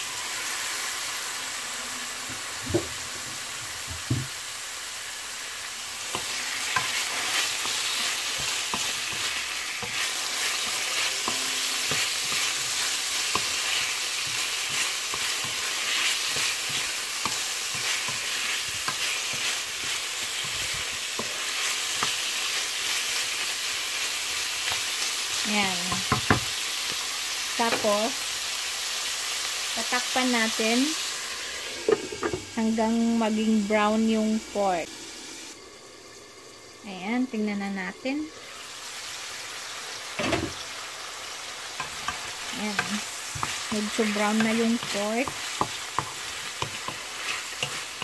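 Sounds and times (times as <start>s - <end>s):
meat sizzling in hot oil: 0.0s - 37.0s, 37.8s - 48.0s
wooden spoon stirring: 6.1s - 23.0s, 41.8s - 48.0s.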